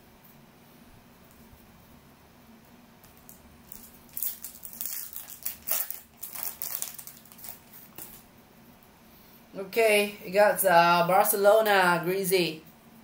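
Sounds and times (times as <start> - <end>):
foil wrapper tearing and crinkling: 3.2 - 8.2.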